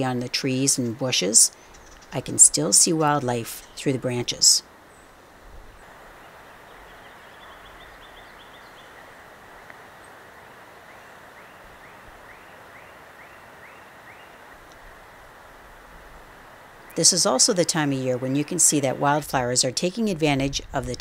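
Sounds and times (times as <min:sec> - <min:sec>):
steady rushing hiss: 0:00.8 - 0:21.0.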